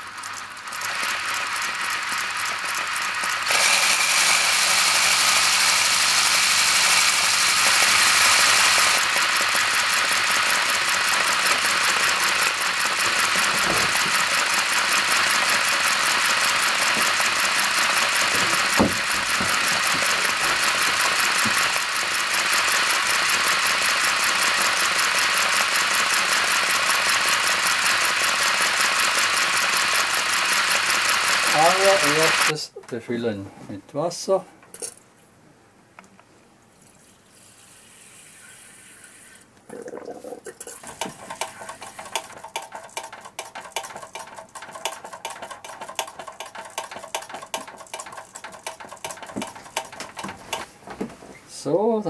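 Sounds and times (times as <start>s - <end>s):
model locomotive running on air: 0.0s - 32.6s.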